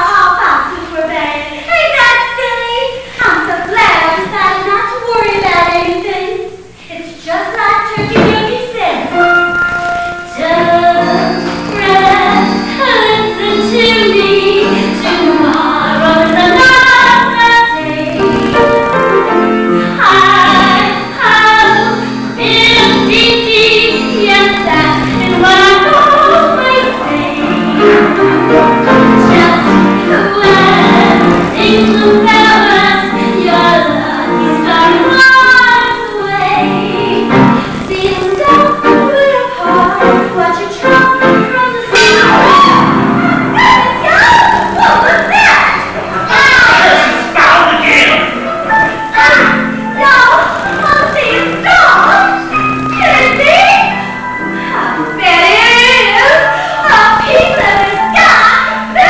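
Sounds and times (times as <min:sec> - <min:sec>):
instrumental accompaniment: 0:07.9 - 0:59.0
woman singing: 0:10.3 - 0:18.6, 0:20.0 - 0:45.4, 0:54.7 - 0:59.0.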